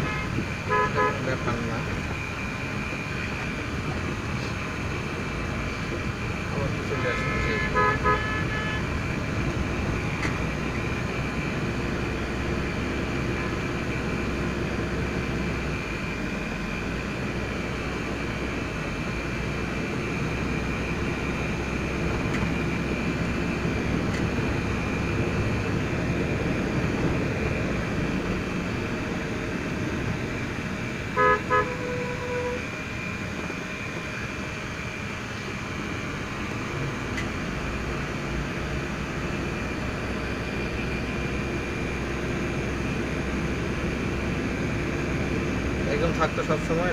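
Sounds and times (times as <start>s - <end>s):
vehicle horn toots: 0.0s - 1.4s, 7.0s - 8.9s, 31.1s - 32.6s
road and engine noise in car: 0.0s - 46.9s.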